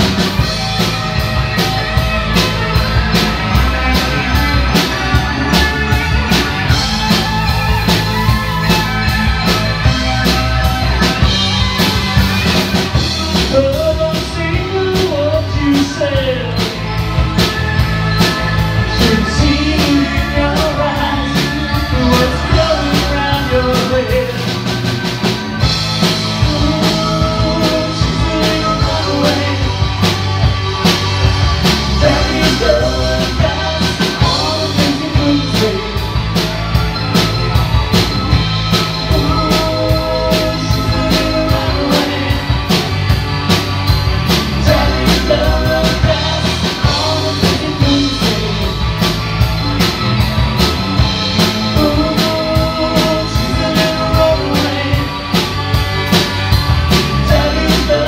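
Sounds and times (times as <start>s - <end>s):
drum kit beat: 0.0s - 58.0s
electric guitar: 0.0s - 58.0s
person singing: 13.2s - 16.8s, 18.8s - 24.7s, 26.3s - 30.1s, 31.9s - 36.2s, 39.0s - 42.9s, 44.4s - 49.1s, 51.4s - 55.5s, 56.9s - 58.0s.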